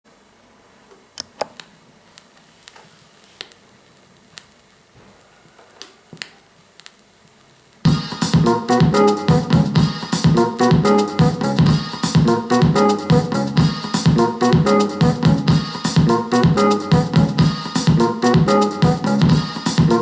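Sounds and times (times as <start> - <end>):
faint vinyl hiss: 0.1 - 20.0
vinyl surface clicks and pops: 3.4 - 4.6
house music track: 7.9 - 20.0.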